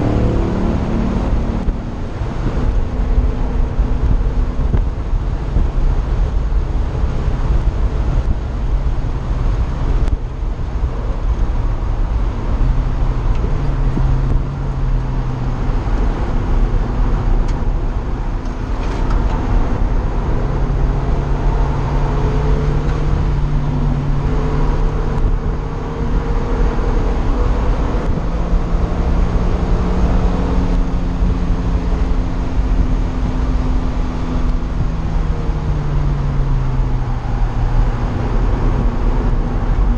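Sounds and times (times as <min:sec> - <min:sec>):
race car engine: 0:00.0 - 0:39.9
wind buffeting microphone: 0:00.0 - 0:39.9.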